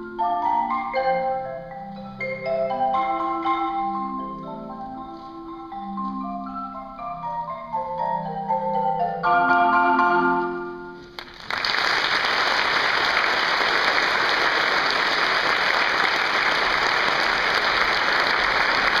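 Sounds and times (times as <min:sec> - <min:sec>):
marimba chord: 0:00.0 - 0:11.1
audience applause: 0:11.2 - 0:19.0.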